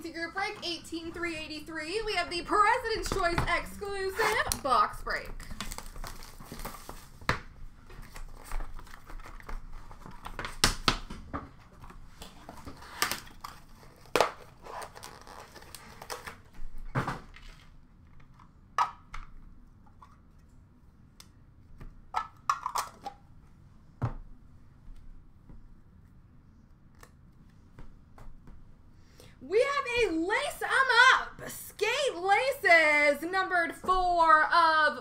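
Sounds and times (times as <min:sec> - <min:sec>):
hands crinkling wrapping: 0:05.4 - 0:07.2.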